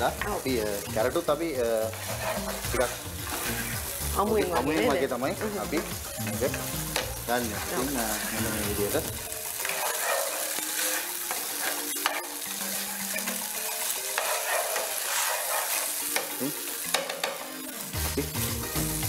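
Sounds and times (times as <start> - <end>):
food sizzling in frying pan: 0.0 - 19.0
utensil clicking against pan: 4.4 - 7.2.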